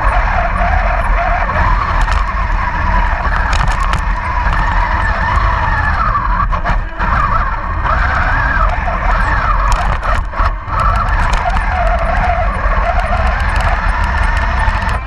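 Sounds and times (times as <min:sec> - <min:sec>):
electric motors whining: 0:00.0 - 0:15.0
sharp clicks: 0:01.8 - 0:02.4, 0:03.2 - 0:06.0, 0:09.6 - 0:15.0.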